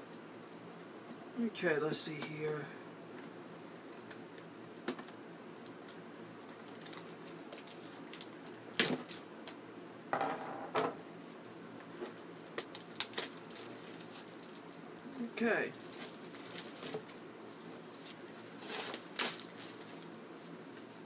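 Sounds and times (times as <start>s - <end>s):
plastic wrap ripping: 12.6s - 14.6s, 15.8s - 17.2s, 18.0s - 20.1s.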